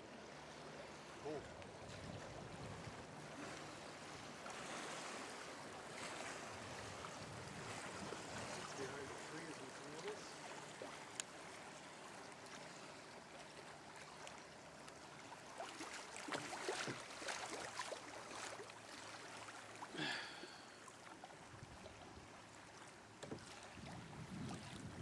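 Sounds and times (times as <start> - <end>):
river water gurgling: 0.0 - 25.0
small splashes and drips: 6.0 - 23.9.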